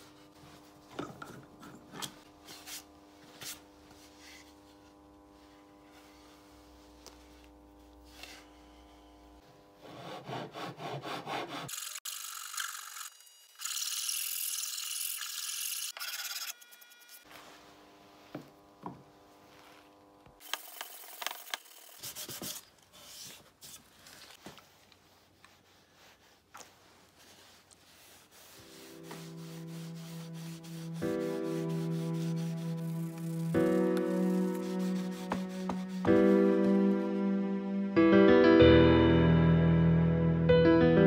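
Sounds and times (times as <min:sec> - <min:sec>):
file rasping on wood: 0:09.8 - 0:11.7, 0:28.0 - 0:36.2.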